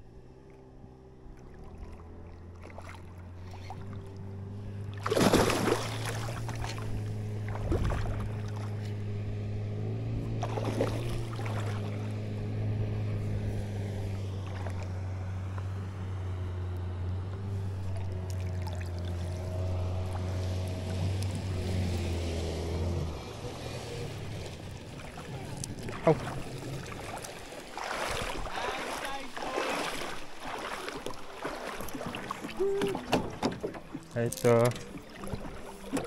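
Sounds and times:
outboard motor humming: 0.0 - 36.0
fish splashing at water surface: 4.9 - 8.8, 10.4 - 12.1, 17.8 - 20.8, 24.3 - 36.0.

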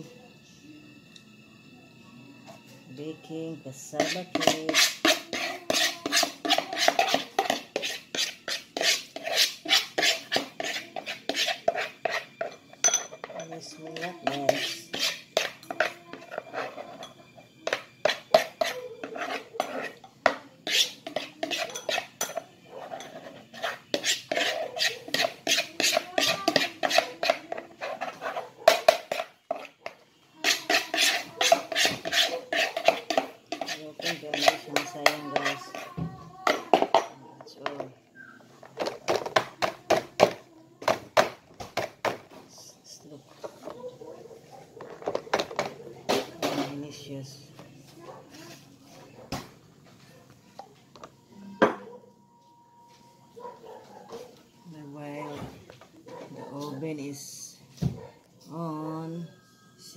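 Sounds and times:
metal spoon scraping a bowl: 3.8 - 37.8.

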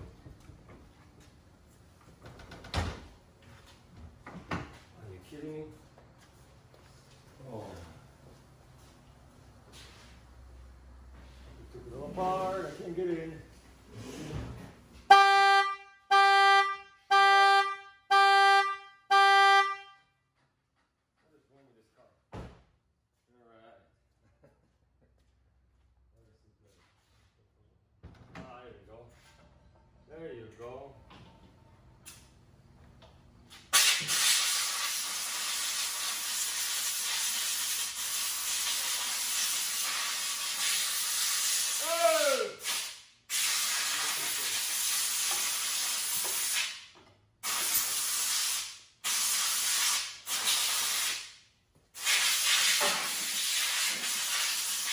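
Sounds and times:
car horn honking: 15.0 - 20.2
hose nozzle spray hissing: 33.8 - 41.8, 47.4 - 51.2, 52.0 - 54.9.

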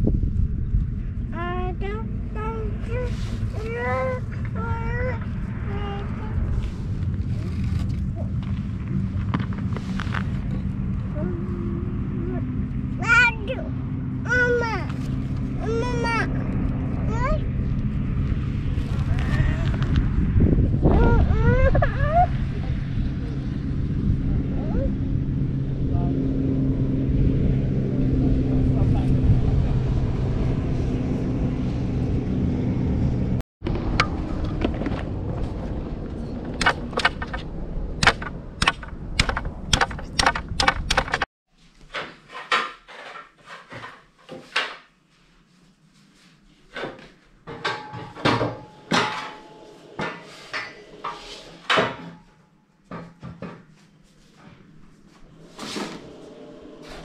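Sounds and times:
steady low rumble: 0.0 - 41.3
loom clicks and knocks: 36.4 - 37.4, 38.0 - 44.8.

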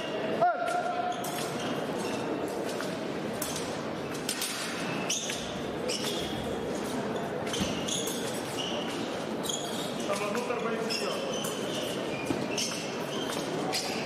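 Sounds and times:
murmur of large hall: 0.0 - 14.0
shoes squeaking and tapping: 0.8 - 14.0.

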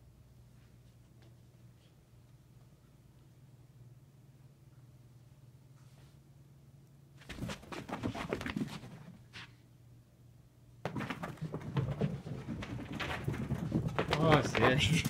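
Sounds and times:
dog paws scrabbling: 7.2 - 9.5, 10.8 - 15.0.

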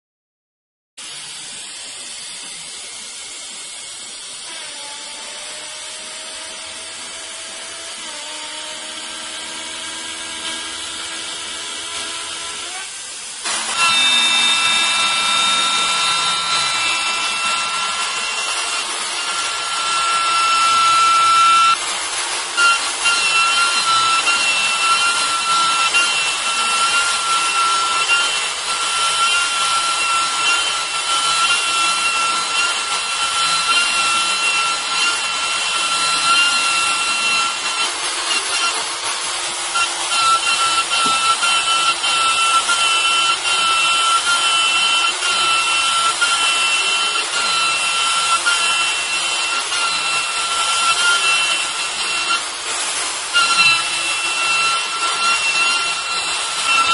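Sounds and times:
router bit cutting hiss: 1.0 - 56.9
router spindle whine: 1.0 - 56.9.

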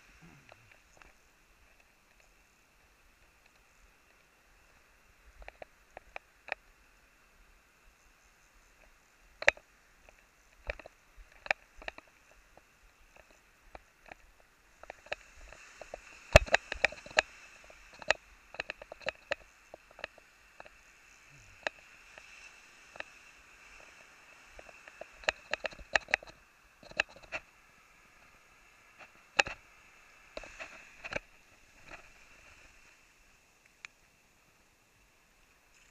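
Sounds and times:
faint surf hiss: 0.0 - 35.9
gear clicks and knocks: 9.4 - 20.8, 24.6 - 27.4.

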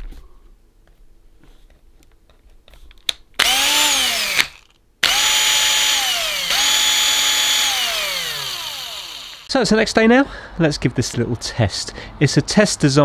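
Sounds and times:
cordless drill motor whining: 3.4 - 9.5.

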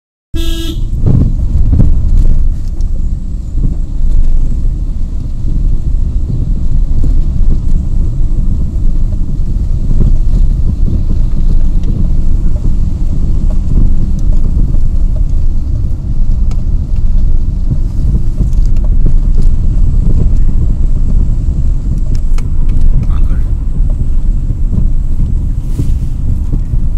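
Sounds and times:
car engine and tyres rumbling: 0.4 - 26.9.

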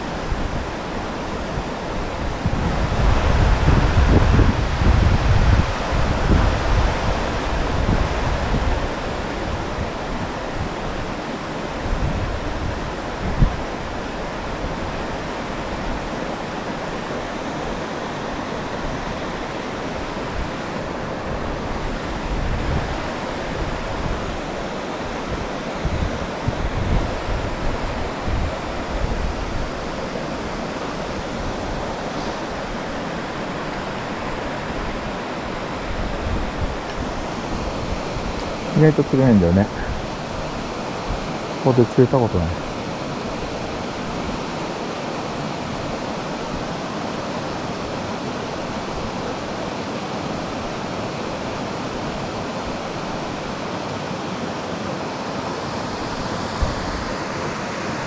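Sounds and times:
wind buffeting microphone: 0.0 - 16.3, 16.9 - 41.4, 56.1 - 57.2
river water rushing: 0.0 - 58.0.

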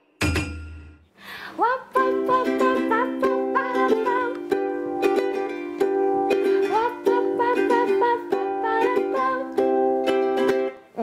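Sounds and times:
woman singing: 1.5 - 5.5, 6.3 - 11.0
ukulele strummed in chords: 1.9 - 11.0.

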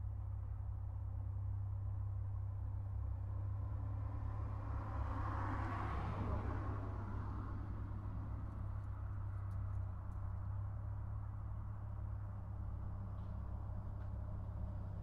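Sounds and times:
low traffic rumble: 0.0 - 15.0
vehicle passing: 4.3 - 9.2.

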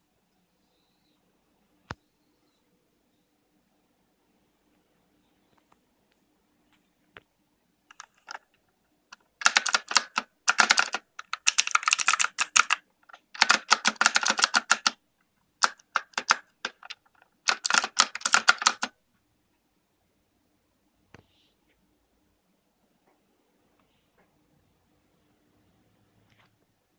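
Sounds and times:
fast typing on mechanical keyboard: 7.9 - 8.4, 9.4 - 15.0, 15.6 - 18.9.

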